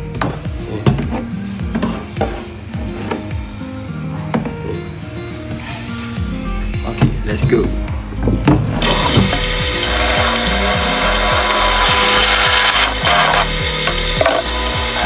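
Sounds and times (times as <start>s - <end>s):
drill press cutting plastic: 8.8s - 15.0s.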